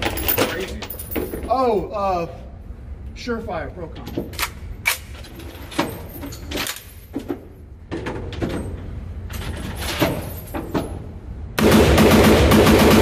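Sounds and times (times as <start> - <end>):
rifle rapid fire: 11.6 - 13.0.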